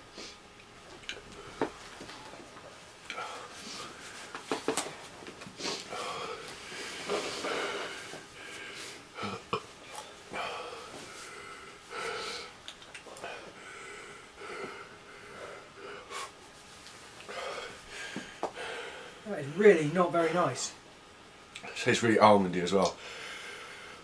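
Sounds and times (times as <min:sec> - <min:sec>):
men breathing hard and sniffing: 0:03.1 - 0:20.5
man blowing nose: 0:05.6 - 0:09.6.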